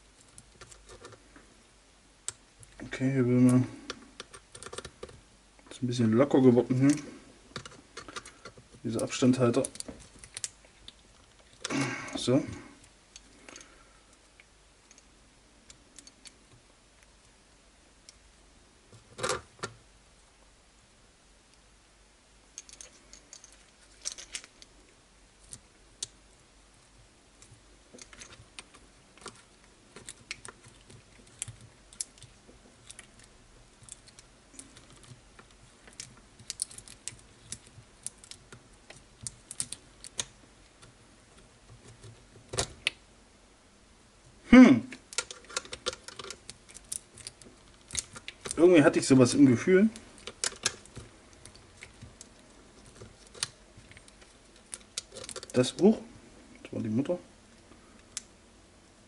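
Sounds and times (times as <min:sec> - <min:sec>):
small parts and tools clicking: 0:03.4 - 0:05.2, 0:06.7 - 0:11.8, 0:12.8 - 0:17.3, 0:22.5 - 0:26.2, 0:27.3 - 0:43.0, 0:44.9 - 0:48.7, 0:49.4 - 0:55.9.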